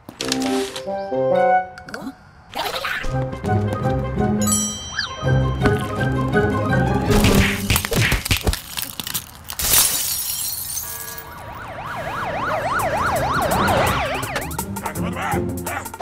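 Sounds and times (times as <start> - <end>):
burglar alarm siren wailing: 4.8 - 7.1, 10.9 - 15.5
glass smashing: 7.1 - 11.2.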